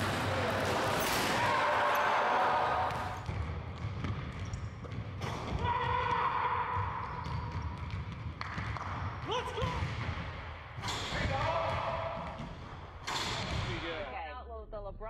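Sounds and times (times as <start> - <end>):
basketball bouncing on wooden floor: 3.2 - 12.9.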